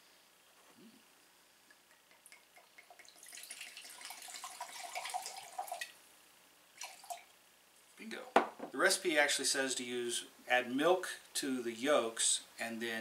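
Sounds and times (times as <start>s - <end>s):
liquid pouring into a glass cup: 1.8s - 6.0s, 6.8s - 7.3s.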